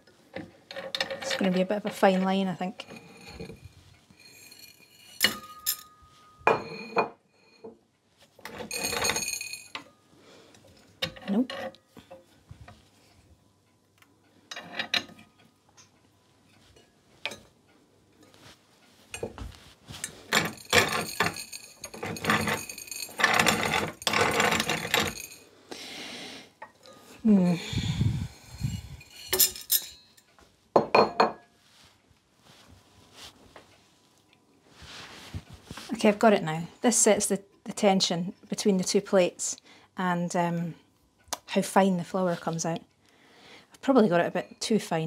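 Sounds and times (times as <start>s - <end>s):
metal clinks and knocks: 2.8s - 7.7s, 8.4s - 10.0s, 19.2s - 25.4s, 27.8s - 31.4s.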